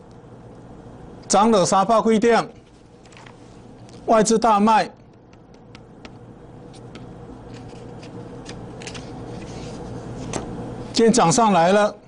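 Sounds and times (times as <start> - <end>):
faint steady hum: 0.0 - 12.0
light crinkles and clicks: 3.0 - 4.1
paper sliding across a desk: 8.8 - 10.4.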